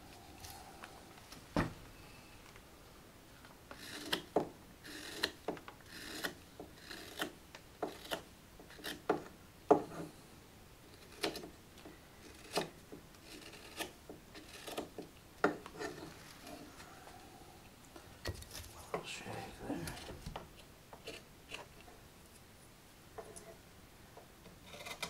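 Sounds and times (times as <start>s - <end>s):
knife shaving wood: 4.9s - 9.1s, 11.0s - 11.5s, 12.2s - 15.0s, 18.2s - 20.3s.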